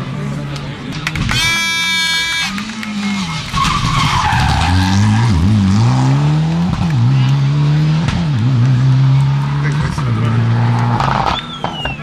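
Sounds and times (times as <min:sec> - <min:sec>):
car engine revving with upshifts: 0:01.9 - 0:11.9
tyre squeal: 0:03.2 - 0:05.2, 0:11.0 - 0:12.0.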